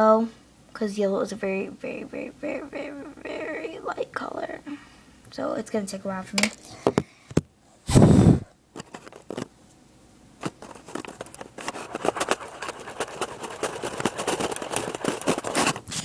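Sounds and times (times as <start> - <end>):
scratchy rubbing on microphone: 10.4 - 16.0.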